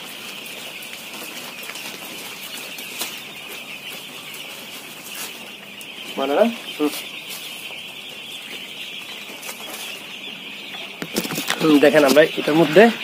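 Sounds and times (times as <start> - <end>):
husk rustling through a sieve: 0.0 - 7.8.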